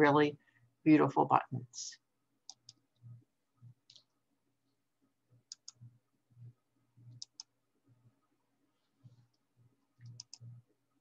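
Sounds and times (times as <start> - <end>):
computer mouse clicks: 2.4 - 4.1, 5.4 - 6.0, 7.1 - 7.5, 10.0 - 10.6.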